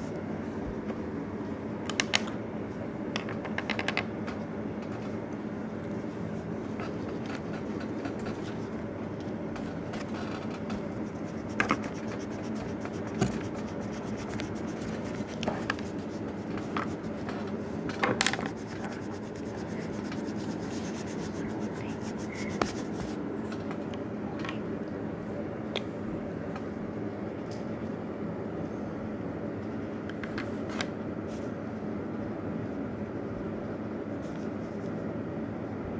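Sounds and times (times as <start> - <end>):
steady background hum: 0.0 - 35.9
marker scratching on paper: 10.9 - 17.3, 18.4 - 23.2.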